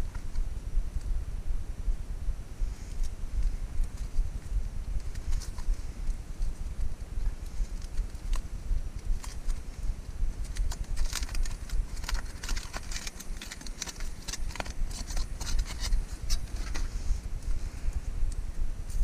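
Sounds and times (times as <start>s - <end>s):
aluminium foil crinkling: 5.0s - 17.6s.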